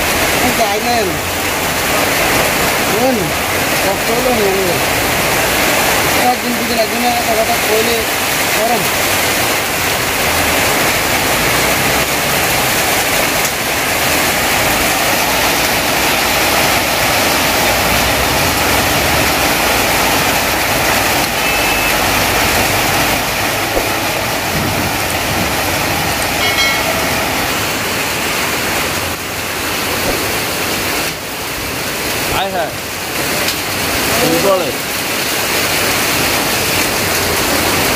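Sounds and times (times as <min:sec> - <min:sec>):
heavy rain on tarpaulin: 0:00.0 - 0:37.9
vehicle horn: 0:21.4 - 0:22.1.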